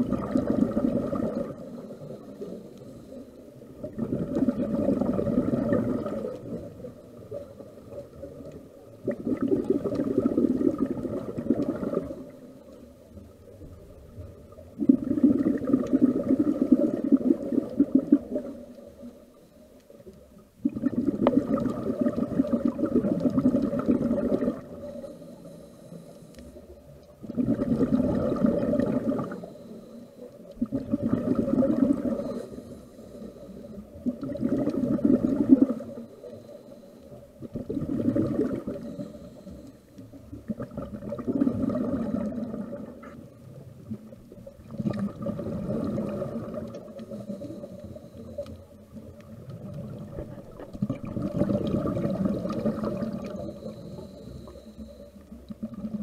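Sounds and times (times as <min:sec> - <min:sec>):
faint steady hum: 0:00.0 - 0:56.0
regulator air bubbles: 0:00.0 - 0:56.0
diver inhaling: 0:24.8 - 0:26.7, 0:32.1 - 0:33.8, 0:35.8 - 0:37.2, 0:38.7 - 0:40.0, 0:53.3 - 0:55.2.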